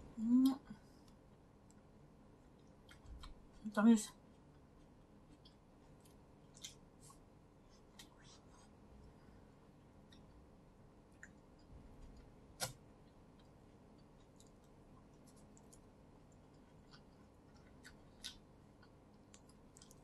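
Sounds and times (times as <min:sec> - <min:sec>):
soft chewing: 0:00.3 - 0:20.0.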